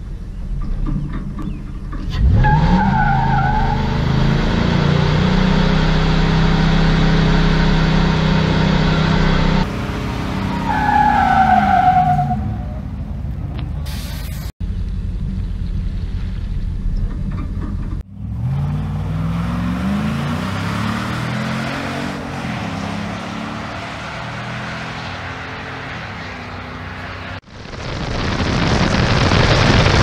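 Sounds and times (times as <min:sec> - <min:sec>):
engine revving: 0:02.0 - 0:11.4, 0:18.0 - 0:27.4
short loud hiss: 0:13.9 - 0:14.5.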